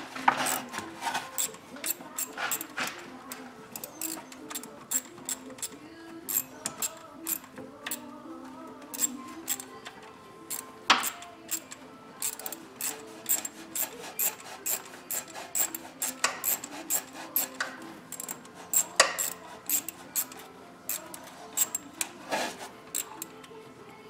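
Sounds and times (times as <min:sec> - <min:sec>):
hand ratchet clicking: 0:00.3 - 0:08.2, 0:08.9 - 0:23.5.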